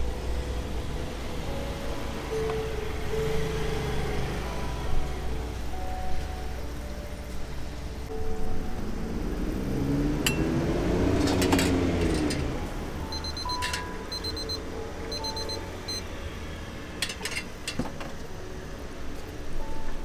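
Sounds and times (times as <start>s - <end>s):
digital kitchen timer beeping: 13.1s - 16.1s
ladles clinking against steel pots: 13.5s - 14.1s.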